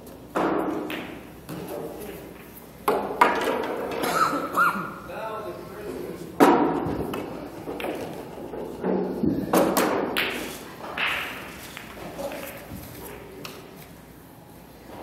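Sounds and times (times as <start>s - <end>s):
cue striking ball: 0.3s - 1.9s, 6.4s - 12.6s
billiard balls clacking: 0.3s - 4.1s, 6.4s - 13.7s.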